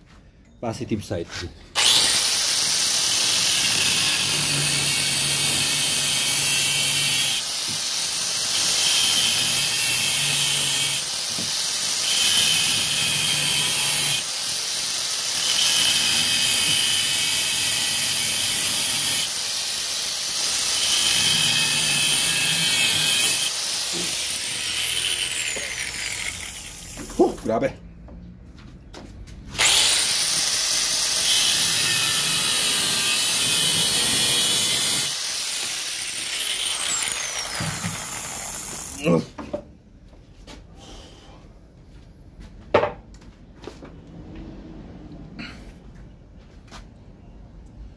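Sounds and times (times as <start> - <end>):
angle grinder cutting metal: 1.8 - 27.6, 29.5 - 39.2.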